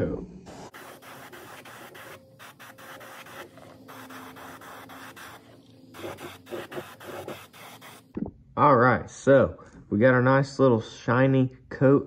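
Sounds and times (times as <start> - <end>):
airbrush spraying paint: 0.5 - 8.2.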